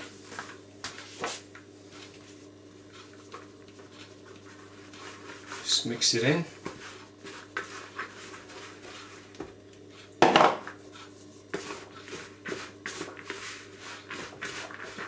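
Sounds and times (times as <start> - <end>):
spoon scraping plastic bowl: 11.5 - 15.0.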